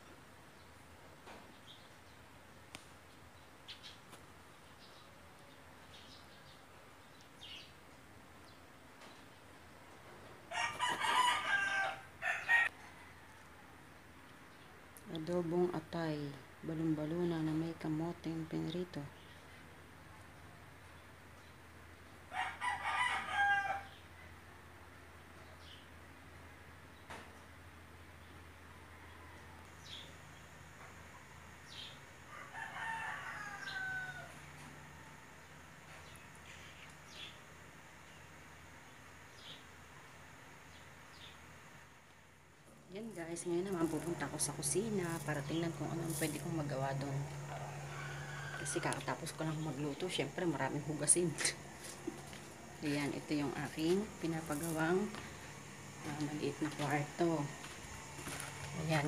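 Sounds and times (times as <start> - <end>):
rooster crowing: 10.5 - 13.8, 22.3 - 24.0, 28.8 - 29.7, 32.2 - 36.5, 47.0 - 49.4.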